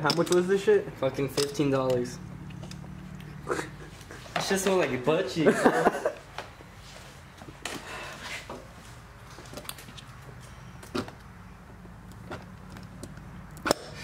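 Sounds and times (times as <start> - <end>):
handling knocks and clicks: 0.0 - 0.6, 1.2 - 3.0, 9.3 - 10.2, 10.8 - 13.9.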